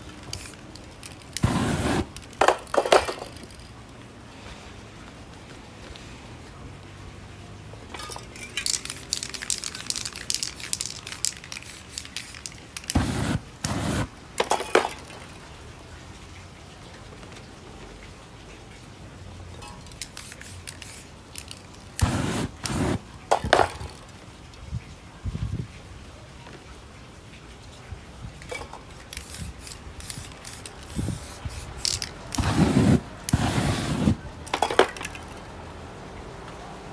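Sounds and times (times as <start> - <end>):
aerosol spray bursts: 0.2 - 0.6, 1.4 - 2.2, 8.9 - 14.1, 20.1 - 21.1, 22.0 - 23.0, 29.2 - 34.2.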